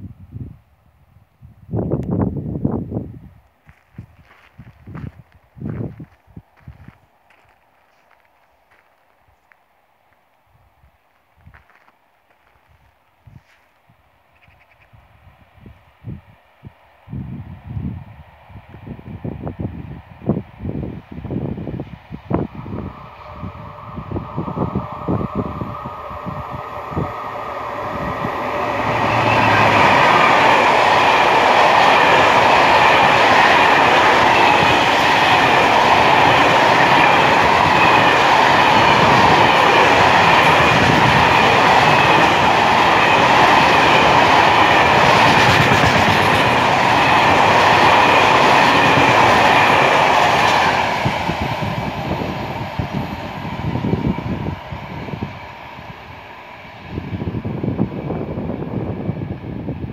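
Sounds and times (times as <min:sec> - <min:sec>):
freight train passing: 0:14.2 - 0:59.9
steel wheels clattering on rails: 0:33.8 - 0:50.6.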